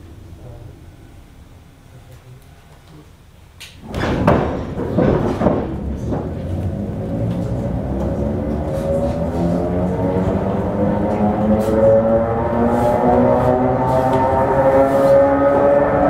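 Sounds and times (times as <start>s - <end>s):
train clunks and rattling: 3.7s - 11.8s
traction motor whine rising: 6.5s - 16.0s.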